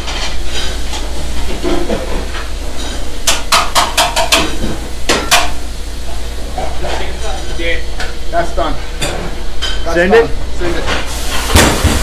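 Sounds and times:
cookware clanking: 0:01.6 - 0:05.6
steady hiss: 0:11.0 - 0:12.0.

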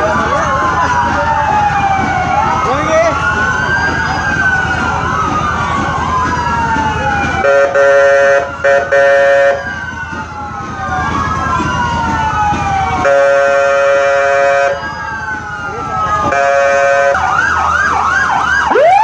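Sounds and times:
emergency vehicle sirens wailing: 0:00.0 - 0:19.0
steady horn blast: 0:07.4 - 0:09.7, 0:13.0 - 0:14.9, 0:16.3 - 0:17.2.

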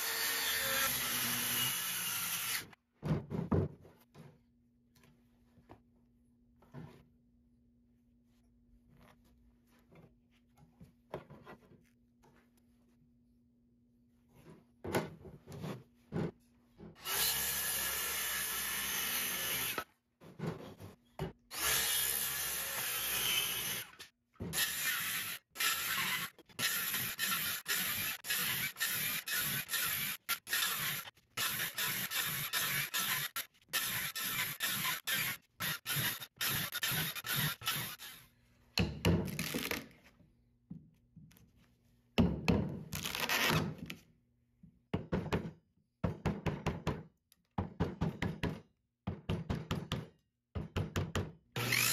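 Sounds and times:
circular saw cutting wood: 0:21.5 - 0:38.3, 0:51.6 - 0:51.9.

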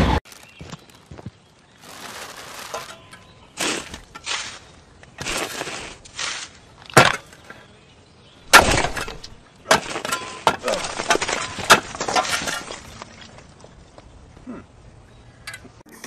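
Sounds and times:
crunching scrapes and clicks: 0:00.0 - 0:07.7, 0:08.5 - 0:14.1
metal shovel digging into soil: 0:02.5 - 0:07.5, 0:08.5 - 0:13.2.

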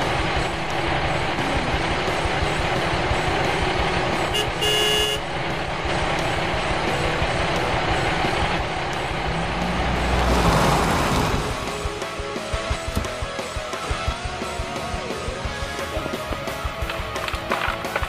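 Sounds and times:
truck engine running: 0:00.0 - 0:17.9
truck horn toot: 0:04.3 - 0:05.3.

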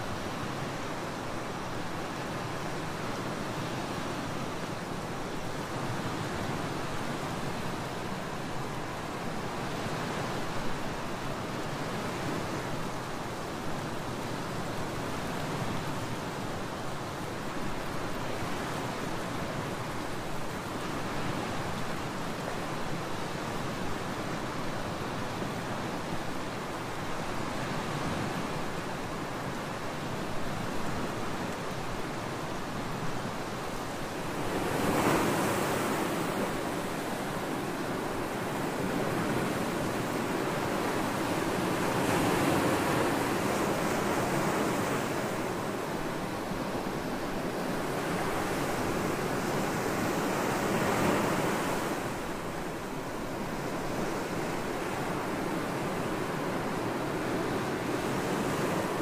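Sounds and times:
ocean surf breaking: 0:32.8 - 0:59.0.

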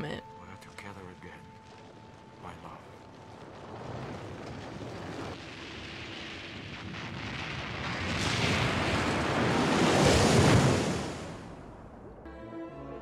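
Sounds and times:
rushing rumbling water eruption: 0:01.6 - 0:12.0.

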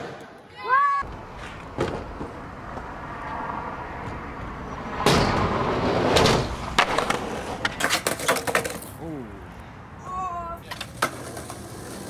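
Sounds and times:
skateboard wheels rolling: 0:00.0 - 0:09.0, 0:10.5 - 0:12.0
skateboard clacks: 0:06.0 - 0:08.9, 0:10.7 - 0:12.0.

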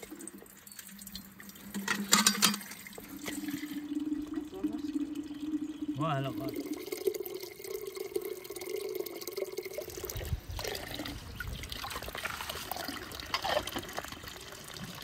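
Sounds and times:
water filling a metal kettle: 0:00.0 - 0:15.0
water splashing into a puddle: 0:11.6 - 0:15.0.

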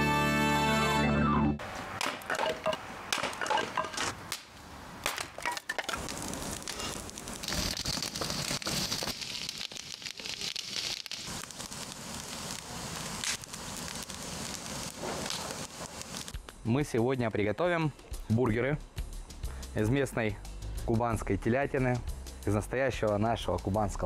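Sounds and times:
wood fire crackling: 0:01.7 - 0:18.4
axe splitting firewood: 0:02.0 - 0:08.5.

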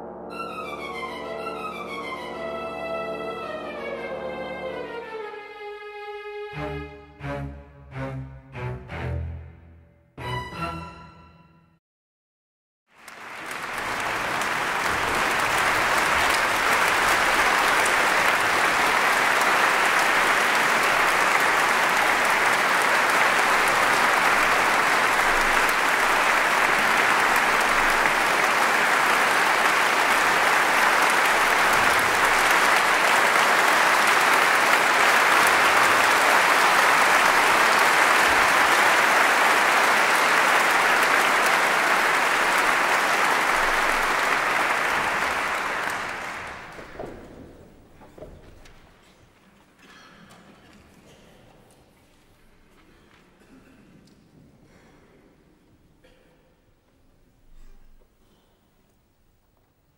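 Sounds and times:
audience applauding: 0:12.9 - 0:48.9.

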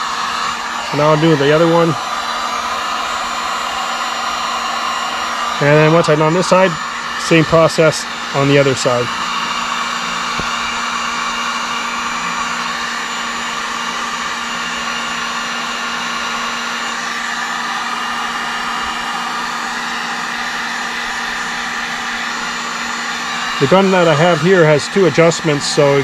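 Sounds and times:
heat gun blowing: 0:00.0 - 0:26.0.

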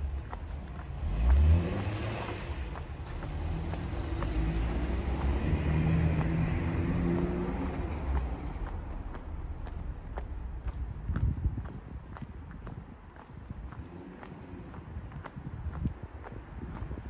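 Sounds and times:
car engine accelerating: 0:00.0 - 0:10.8
faint footsteps: 0:00.0 - 0:17.0.

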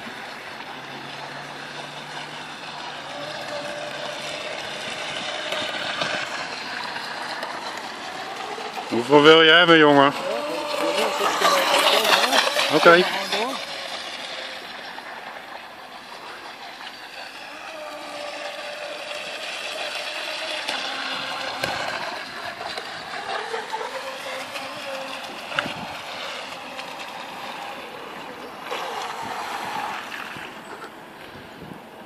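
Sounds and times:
model boat motor whining: 0:00.0 - 0:32.0.

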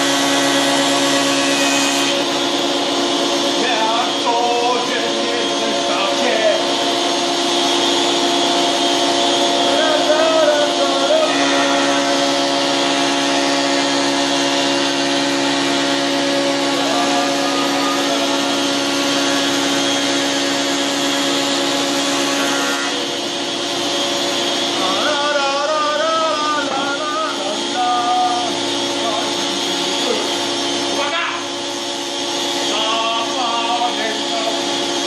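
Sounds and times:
dust extraction: 0:00.0 - 0:35.0
planer machine hum and hiss: 0:00.0 - 0:35.0
person's voice: 0:03.6 - 0:06.7, 0:09.7 - 0:11.3, 0:32.7 - 0:34.6.

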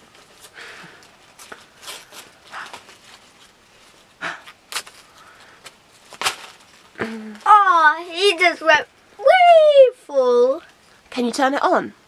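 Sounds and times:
cardboard tearing and rustling: 0:04.6 - 0:06.9.

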